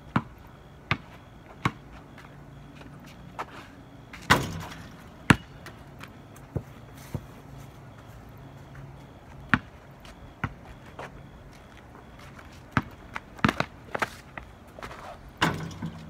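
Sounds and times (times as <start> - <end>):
basketball bouncing on concrete: 0.0 - 2.3, 4.2 - 7.3, 9.4 - 10.8, 12.2 - 16.0.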